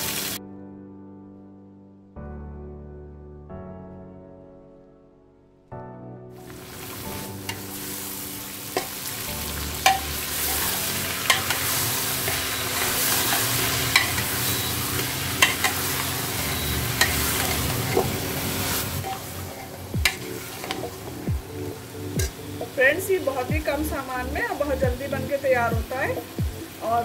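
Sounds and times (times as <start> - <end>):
onions sizzling in hot oil: 0.0 - 0.4, 6.4 - 27.0
piano music: 0.0 - 27.0
spoon clinking against pot: 9.8 - 10.6, 11.2 - 16.0, 17.0 - 18.1.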